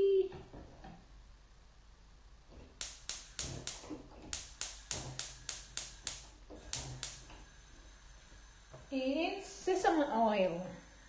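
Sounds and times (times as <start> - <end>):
gas hob igniter clicking: 2.6 - 7.5.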